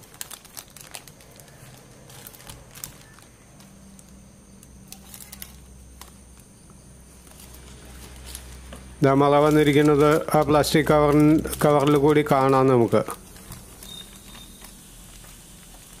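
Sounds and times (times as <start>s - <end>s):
plastic bag crinkling: 0.0s - 6.5s, 7.1s - 16.0s
faint low hum: 0.0s - 16.0s.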